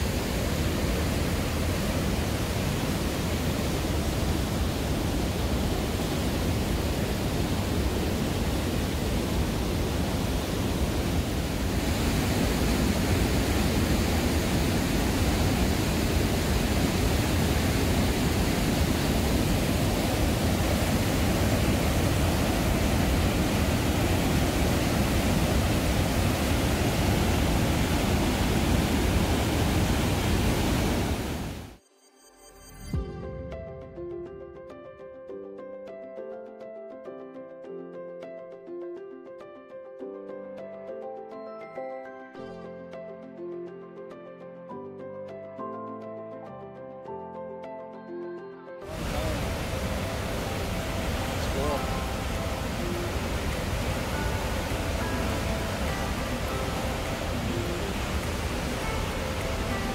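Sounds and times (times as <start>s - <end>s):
rushing whitewater: 0.0s - 31.8s, 48.9s - 59.9s.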